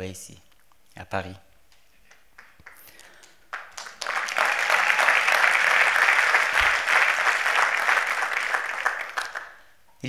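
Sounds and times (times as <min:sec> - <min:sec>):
audience applauding: 0:02.0 - 0:09.6.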